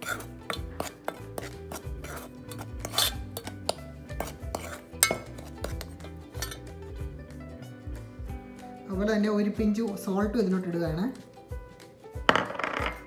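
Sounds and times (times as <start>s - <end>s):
spoon scraping bowl: 0.0s - 6.8s
metal spoon stirring flour: 0.0s - 7.1s
background music: 0.0s - 13.0s.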